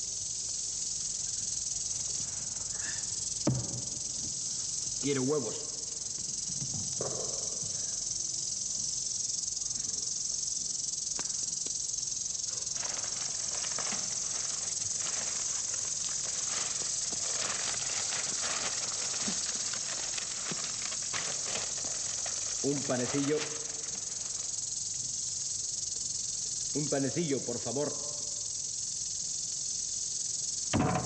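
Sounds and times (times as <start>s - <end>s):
high-pitched hiss: 0.0s - 31.0s
wrapping crinkling: 12.7s - 24.6s.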